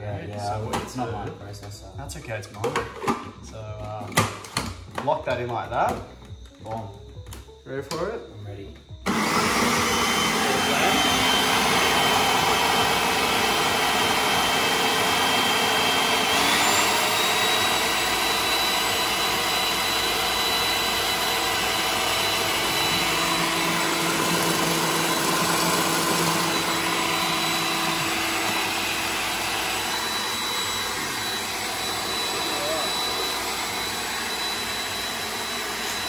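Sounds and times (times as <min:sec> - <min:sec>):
food processor motor whining: 0:08.9 - 0:36.0.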